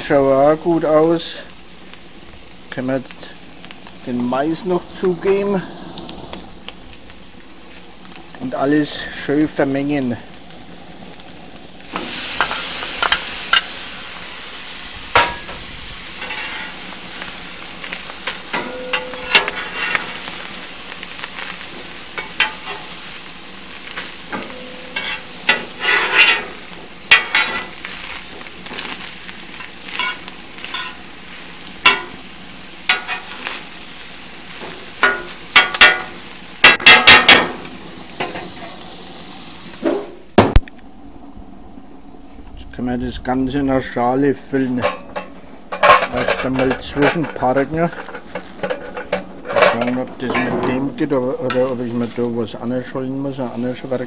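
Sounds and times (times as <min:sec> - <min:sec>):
food sizzling on griddle: 0:00.0 - 0:54.0
metal scraper scraping griddle: 0:16.2 - 0:16.8, 0:18.5 - 0:20.2, 0:24.3 - 0:28.8.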